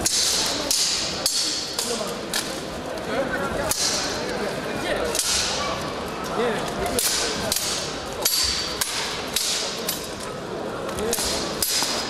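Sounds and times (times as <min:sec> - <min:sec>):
swords clanking on armour: 0:00.0 - 0:02.5, 0:07.0 - 0:10.1, 0:11.1 - 0:12.0.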